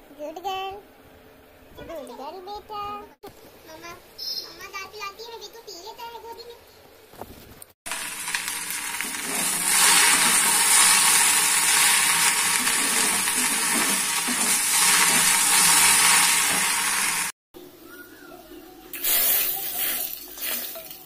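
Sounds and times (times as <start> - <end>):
vegetables sizzling in hot oil: 7.9 - 17.4.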